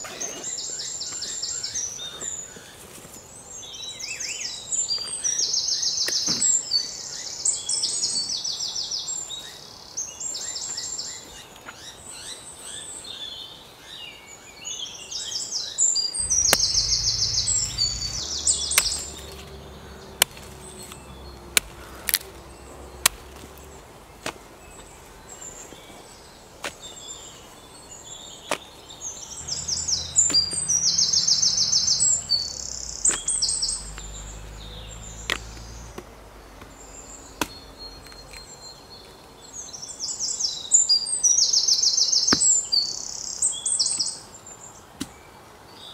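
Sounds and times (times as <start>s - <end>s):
birds calling with rapid trills: 0.0s - 44.8s
blade chopping tree stump: 20.2s - 22.4s, 23.0s - 24.4s, 35.3s - 38.4s.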